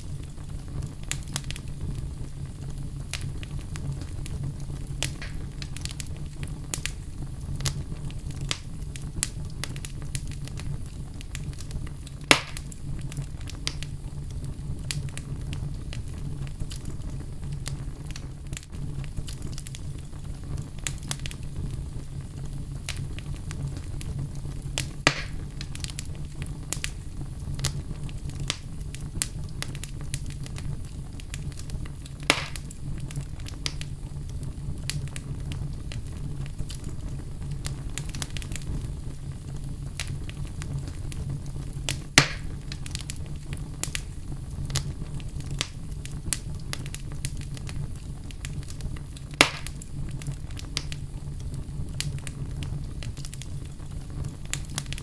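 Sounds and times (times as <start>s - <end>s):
wood fire crackling: 0.0s - 55.0s.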